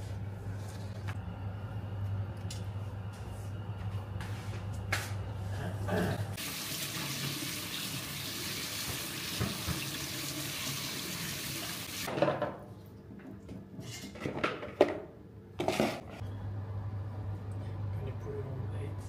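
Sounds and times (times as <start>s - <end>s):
tap water splashing into sink: 6.7s - 10.9s.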